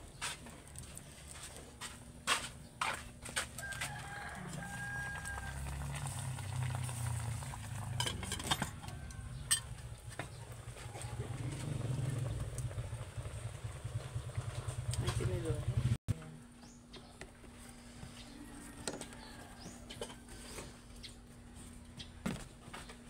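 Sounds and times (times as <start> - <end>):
metal pots clinking: 7.4 - 9.8.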